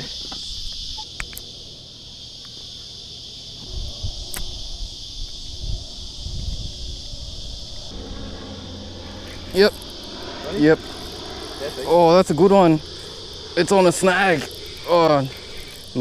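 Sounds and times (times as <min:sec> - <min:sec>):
high-pitched insect chorus: 0:00.0 - 0:16.0
low rumbling noise: 0:03.7 - 0:16.0.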